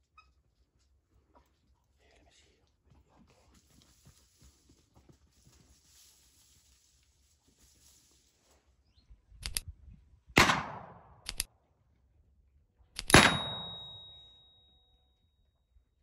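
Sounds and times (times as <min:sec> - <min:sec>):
sharp double click: 0:09.4 - 0:09.6, 0:11.2 - 0:11.5, 0:13.0 - 0:13.9
shotgun shots echoing: 0:10.4 - 0:11.5, 0:13.0 - 0:14.0.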